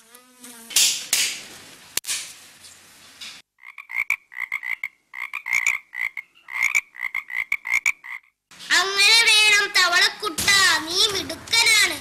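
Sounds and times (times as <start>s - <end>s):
frog croaking: 3.6s - 8.4s.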